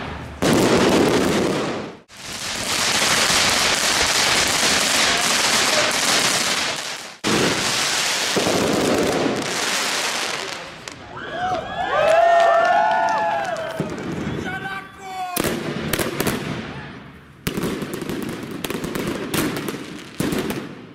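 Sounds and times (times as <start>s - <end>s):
fireworks hissing and crackling: 0.0s - 11.0s.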